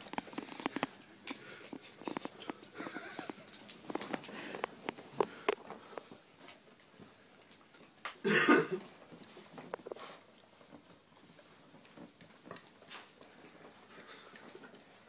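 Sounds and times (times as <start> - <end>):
person coughing: 8.2 - 8.9.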